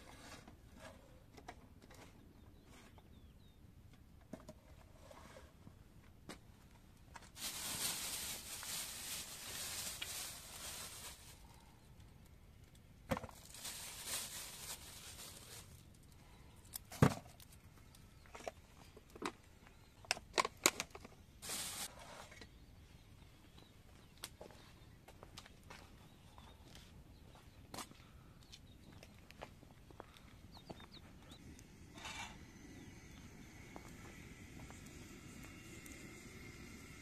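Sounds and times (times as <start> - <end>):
plastic bags rustling: 7.3 - 11.5, 13.2 - 16.1, 21.4 - 21.9.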